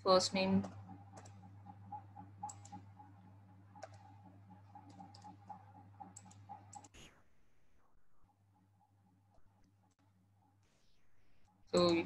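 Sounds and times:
low electrical hum: 0.0s - 12.0s
keystrokes on computer keyboard: 0.6s - 1.4s, 2.4s - 2.8s, 4.8s - 5.4s, 6.1s - 7.0s.

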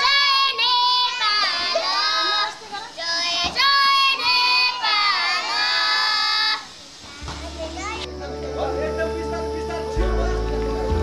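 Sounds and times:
children singing: 0.0s - 6.7s.

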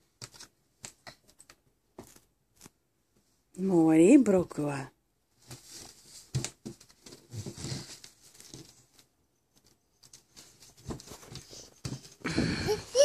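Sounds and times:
toddler shifting on play mat: 5.4s - 8.9s.

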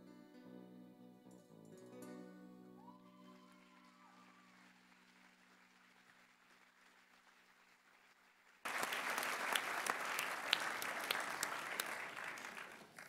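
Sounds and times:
audience applause: 2.9s - 13.0s.

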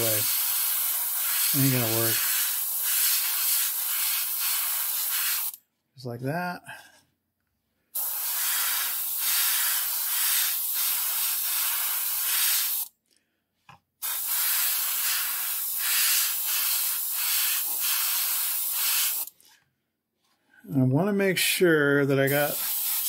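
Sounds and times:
airbrush hissing: 0.0s - 5.6s, 8.0s - 12.9s, 14.0s - 19.3s, 22.2s - 23.0s.

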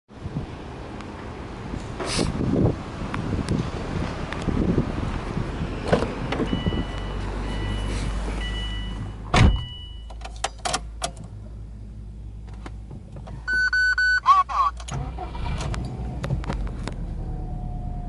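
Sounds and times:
car warning chime beeping: 6.5s - 10.2s, 13.5s - 14.7s
car door shutting thud: 9.3s - 9.8s
car door opening clicks: 9.3s - 11.3s.

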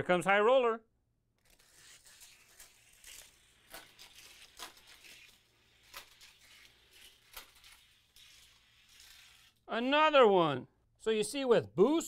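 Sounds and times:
toy car rattling along plastic track: 1.4s - 9.6s.

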